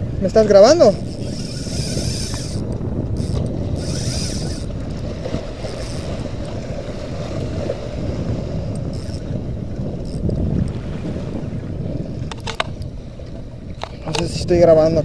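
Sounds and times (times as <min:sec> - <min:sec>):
wind and water rumble: 0:00.0 - 0:15.0
fishing reel whirring and clicking: 0:00.9 - 0:06.6, 0:08.6 - 0:10.4, 0:12.2 - 0:12.9.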